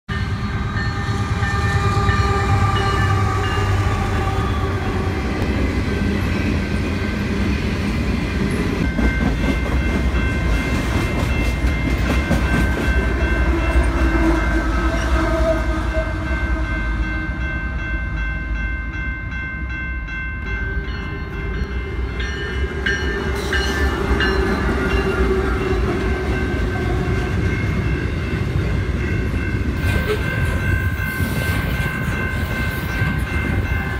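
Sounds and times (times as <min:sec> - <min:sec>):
train horn: 0:00.2 - 0:05.5, 0:12.9 - 0:17.4, 0:22.6 - 0:27.8, 0:29.8 - 0:30.6.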